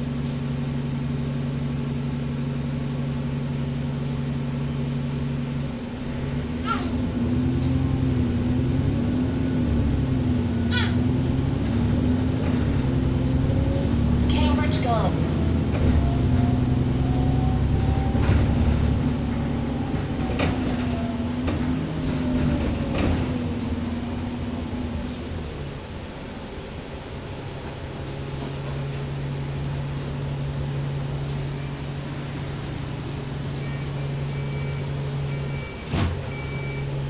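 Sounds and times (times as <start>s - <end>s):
bus engine drone: 0.0s - 37.0s
whining tone: 6.2s - 26.0s.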